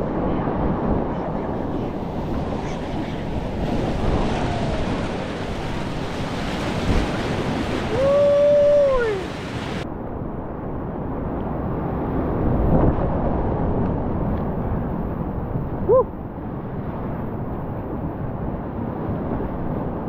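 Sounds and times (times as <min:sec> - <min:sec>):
wind buffeting microphone: 0:00.0 - 0:20.0
whitewater rapids rushing: 0:02.9 - 0:09.8.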